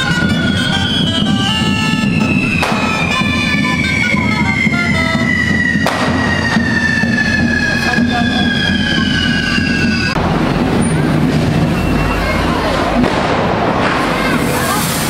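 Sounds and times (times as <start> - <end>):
reed wind instrument playing tune: 0.0 - 15.0
descending whistle: 0.1 - 10.2
firecracker bangs: 0.1 - 15.0.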